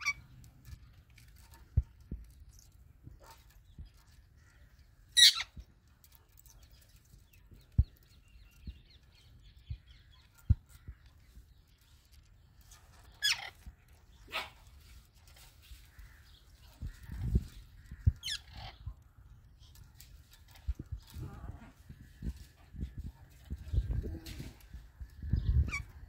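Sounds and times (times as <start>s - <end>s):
parrot screeching: 5.2s - 5.5s.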